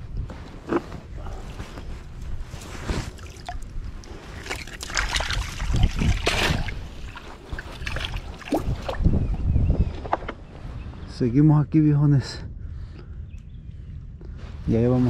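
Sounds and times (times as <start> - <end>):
water sloshing in a bucket: 3.0 - 9.1.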